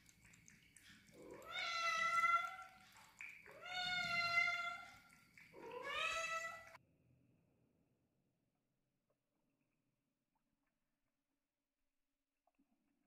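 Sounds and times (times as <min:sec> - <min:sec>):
cat meowing: 0:03.5 - 0:05.0, 0:05.6 - 0:06.8.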